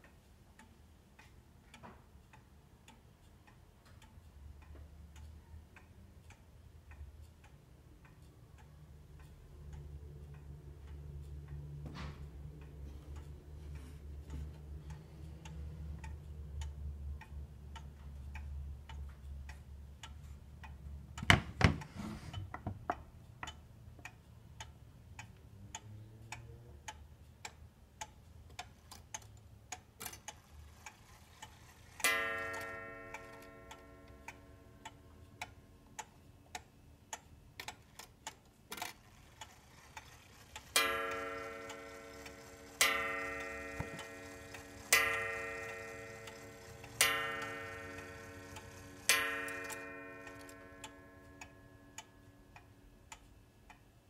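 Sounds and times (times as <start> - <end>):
wall clock ticking: 0.0 - 54.0
clock gong ringing: 40.8 - 51.9.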